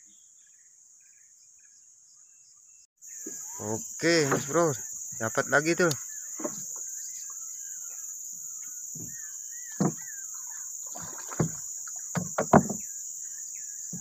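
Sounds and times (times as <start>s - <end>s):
birds chirping: 0.0s - 14.0s
high drone of insects: 0.5s - 14.0s
knocks on wooden boat: 9.8s - 10.1s, 11.2s - 12.9s.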